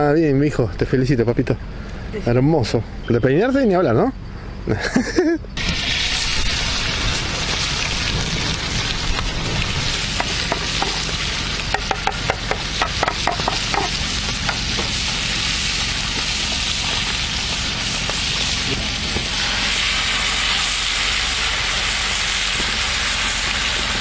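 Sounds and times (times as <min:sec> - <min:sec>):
fish sizzling in hot oil: 0:05.6 - 0:24.0
oil popping and crackling: 0:05.6 - 0:24.0.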